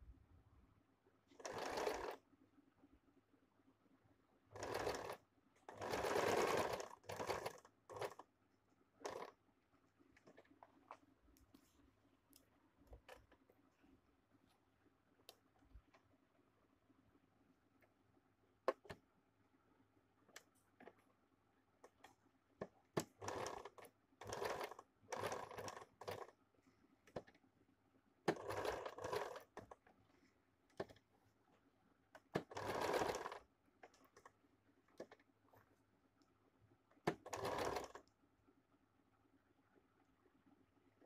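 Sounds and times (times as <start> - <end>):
sewing machine stitching: 1.3 - 2.2, 4.5 - 8.3, 9.0 - 9.4, 21.8 - 26.4, 28.2 - 29.9, 32.1 - 35.3, 37.0 - 38.1.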